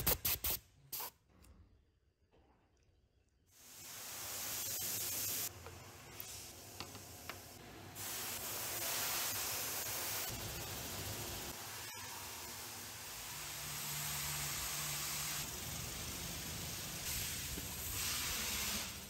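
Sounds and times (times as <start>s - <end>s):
steady hiss: 3.6s - 5.5s, 6.1s - 19.0s.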